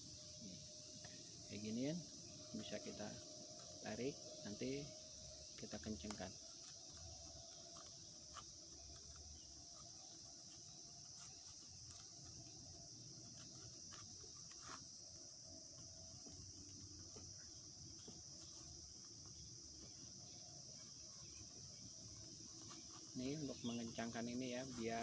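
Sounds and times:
insects chirring: 0.0s - 25.0s
leaf strips clicking and rustling: 5.6s - 12.5s.

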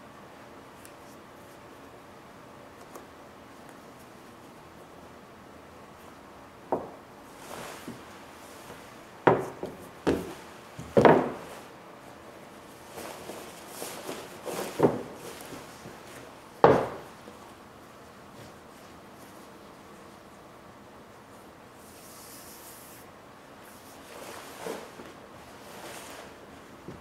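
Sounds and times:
rubbing and rustling sheeting: 23.7s - 26.8s.

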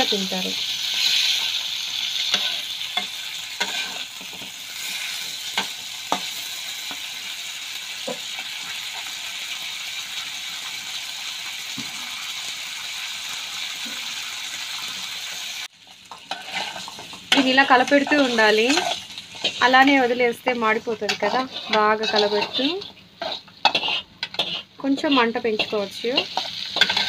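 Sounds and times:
chicken sizzling in hot oil: 0.0s - 27.0s
spatula scraping pan: 0.9s - 7.2s, 16.1s - 27.0s.

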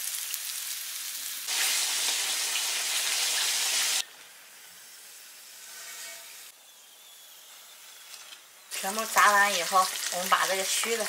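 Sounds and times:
squid sizzling in hot oil: 0.0s - 6.5s, 7.8s - 11.0s.

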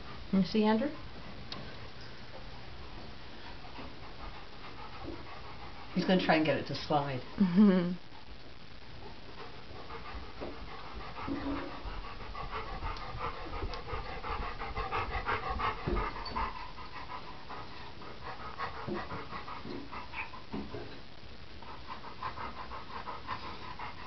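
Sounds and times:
dog panting: 3.4s - 7.4s, 9.3s - 20.9s, 21.6s - 24.0s.

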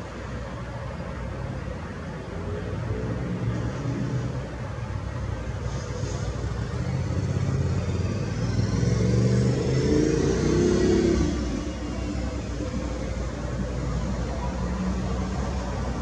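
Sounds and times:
traffic rumble: 0.0s - 16.0s
motor vehicle passing: 5.6s - 14.0s.

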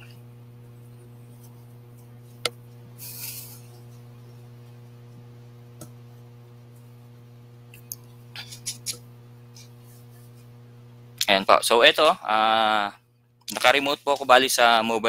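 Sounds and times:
low electrical hum: 0.0s - 15.0s
short hiss: 3.0s - 3.7s.

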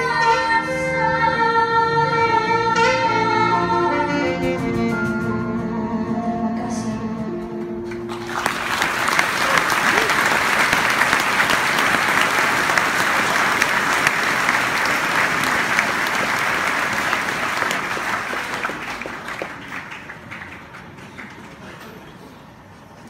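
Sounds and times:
large crowd applauding: 7.9s - 22.1s.

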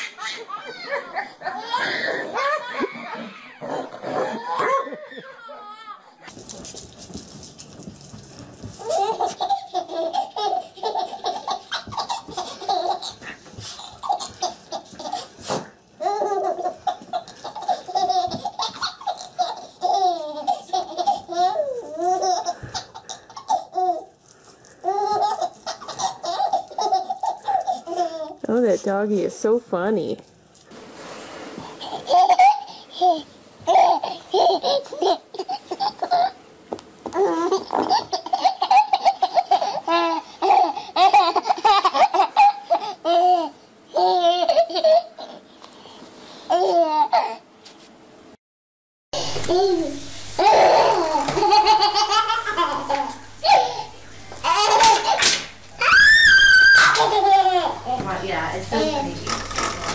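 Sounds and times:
baby laughing: 0.0s - 6.3s, 8.8s - 24.2s, 24.8s - 28.4s, 31.7s - 36.4s, 37.1s - 45.4s, 46.5s - 47.4s, 49.5s - 57.8s.

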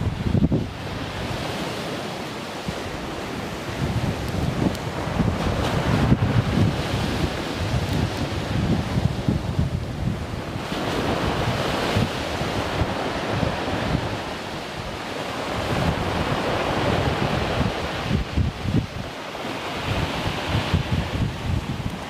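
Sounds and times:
sea waves breaking on rocks: 0.0s - 22.0s
wind rumbling on microphone: 0.0s - 22.0s.

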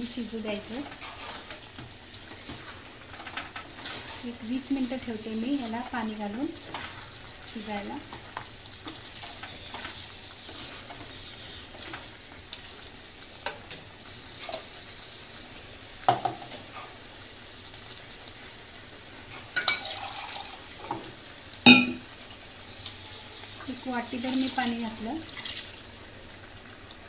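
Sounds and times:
food sizzling in a pot: 0.0s - 27.0s
wooden spatula scraping a pot: 0.6s - 12.1s.

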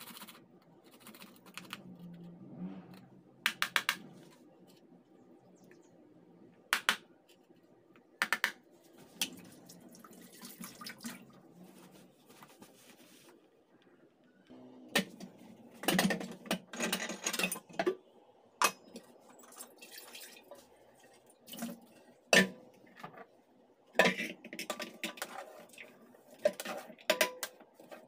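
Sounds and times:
pot and kitchenware clinking: 26.4s - 27.6s.

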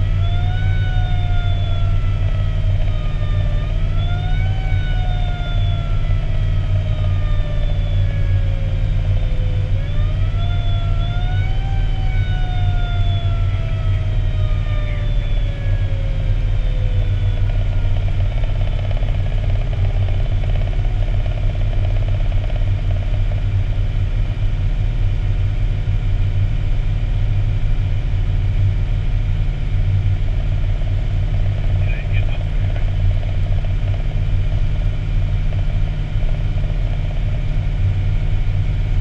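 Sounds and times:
siren: 0.0s - 24.0s
engine and road noise in cab: 0.0s - 39.0s.

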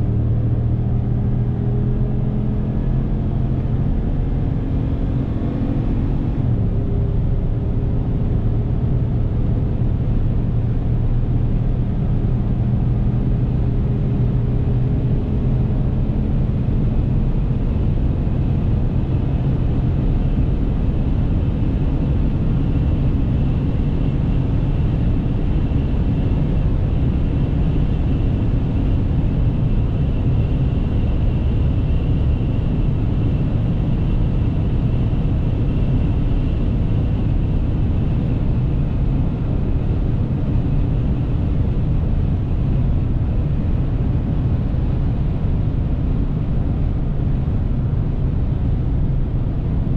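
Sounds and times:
road and wind noise: 0.0s - 49.9s.

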